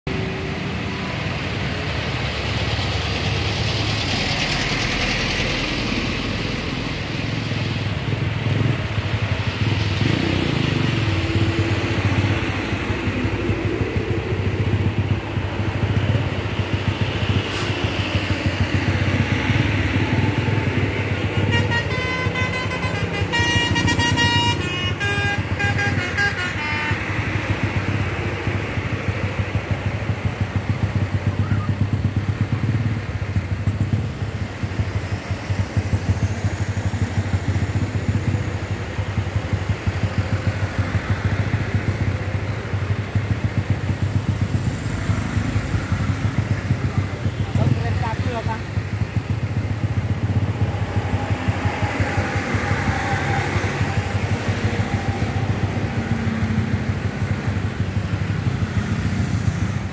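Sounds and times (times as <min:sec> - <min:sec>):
engines idling hum: 0:00.1 - 0:59.9
musical bus horn melody: 0:21.4 - 0:27.1.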